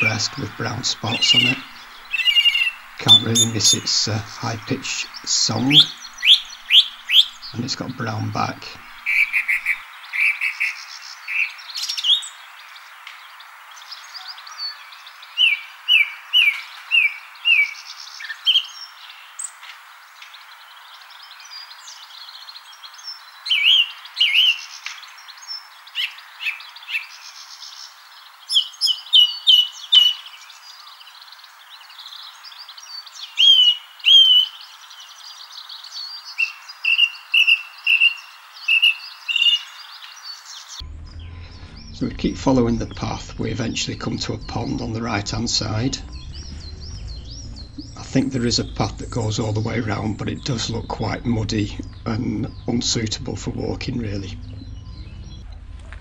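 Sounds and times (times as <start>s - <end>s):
thrush singing: 0.0s - 11.6s, 36.2s - 55.8s
steady hiss: 0.0s - 40.8s.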